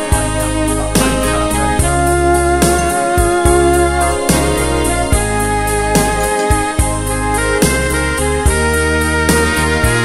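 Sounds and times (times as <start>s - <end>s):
electric keyboard music with bass: 0.0s - 10.0s.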